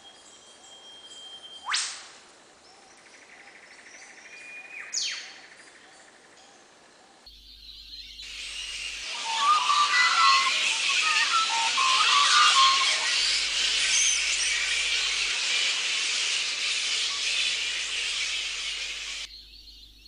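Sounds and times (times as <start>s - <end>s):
held whistle-like tones: 0.0s - 2.2s, 8.2s - 19.3s
faint high chirps: 7.3s - 20.0s
music: 8.6s - 13.6s.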